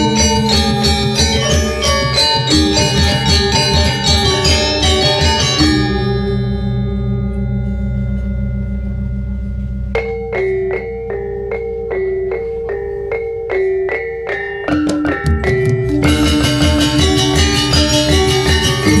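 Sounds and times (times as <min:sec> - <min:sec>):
kettle gong solo melody: 0:00.0 - 0:13.4, 0:15.9 - 0:19.0
wavering low hum: 0:00.0 - 0:13.5
gamelan ensemble: 0:00.0 - 0:19.0
metallophones and gongs ringing: 0:00.0 - 0:19.0.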